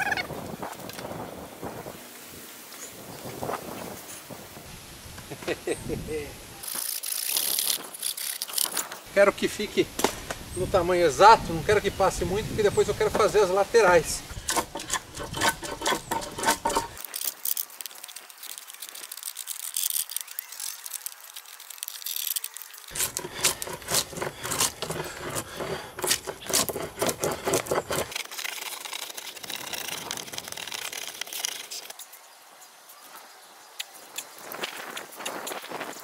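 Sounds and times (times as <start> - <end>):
wooden poles clicking and scraping: 6.6 - 9.1, 12.4 - 32.1.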